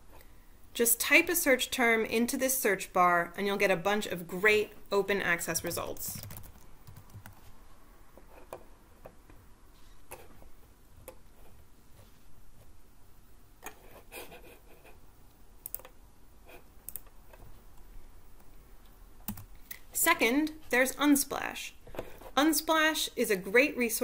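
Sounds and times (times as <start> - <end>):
keyboard and mouse clicks: 5.6 - 7.4, 15.6 - 16.0, 16.8 - 18.5.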